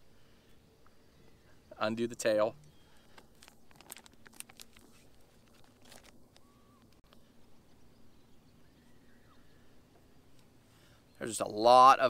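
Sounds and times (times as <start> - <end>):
faint steady hum: 0.0 - 12.0
plastic bag crinkling: 3.0 - 7.0.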